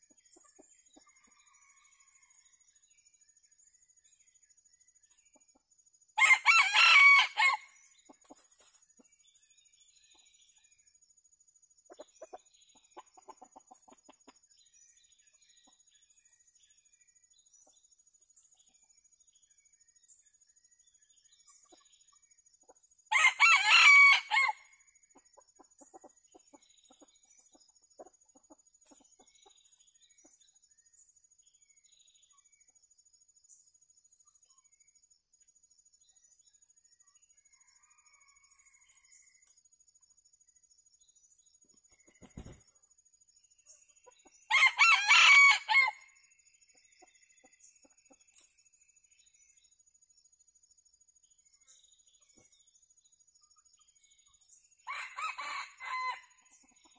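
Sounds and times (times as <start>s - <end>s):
rooster crowing: 6.2s - 7.7s, 23.1s - 24.7s, 44.5s - 46.0s, 54.9s - 56.3s.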